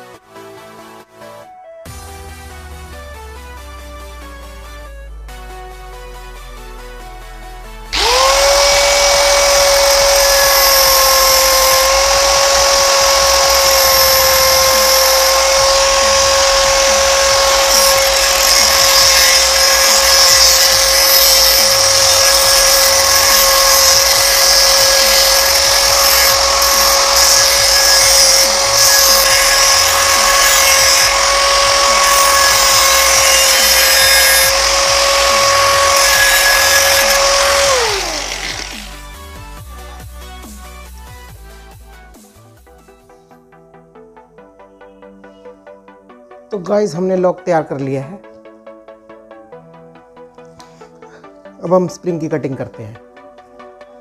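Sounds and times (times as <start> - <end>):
angle grinder grinding metal: 7.9 - 39.8.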